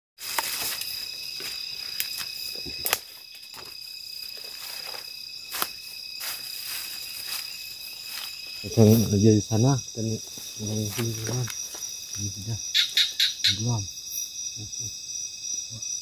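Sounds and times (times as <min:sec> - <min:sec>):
twigs cracking: 0:00.2 - 0:08.6, 0:10.4 - 0:12.3
rustling leaves: 0:00.2 - 0:13.0
insect chorus trilling: 0:00.2 - 0:16.0.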